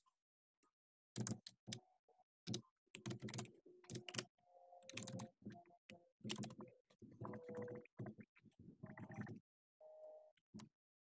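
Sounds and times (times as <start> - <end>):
computer keyboard typing: 2.5 - 5.6, 6.2 - 6.7.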